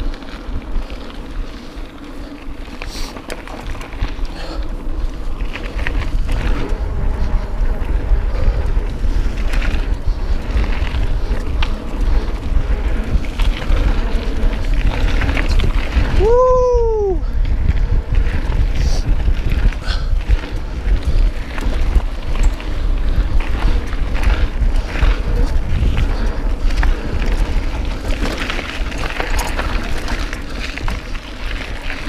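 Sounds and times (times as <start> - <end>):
bike clicks and rattles: 0.0 - 32.0
tyre noise on dirt trail: 0.0 - 32.0
wind buffeting microphone: 0.0 - 32.0.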